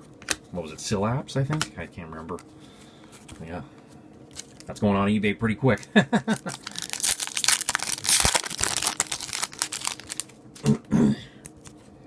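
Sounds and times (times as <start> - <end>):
foil wrapper crinkling: 6.3 - 10.4.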